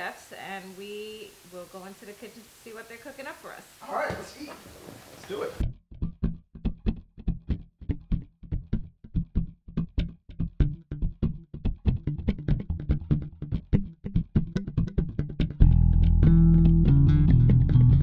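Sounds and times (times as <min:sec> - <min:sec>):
bass line: 0:05.6 - 0:18.0
plucked guitar notes: 0:05.6 - 0:18.0.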